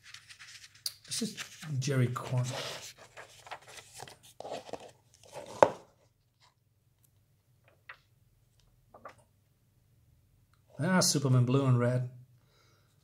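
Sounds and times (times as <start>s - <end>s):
paper pages rustling: 0.0s - 6.5s.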